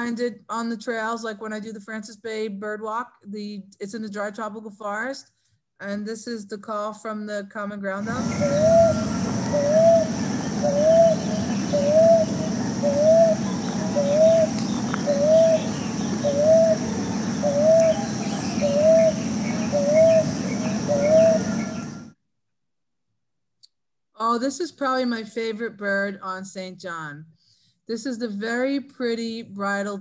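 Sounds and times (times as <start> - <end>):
dove cooing: 8.0 - 22.1
steady background hiss: 8.0 - 22.1.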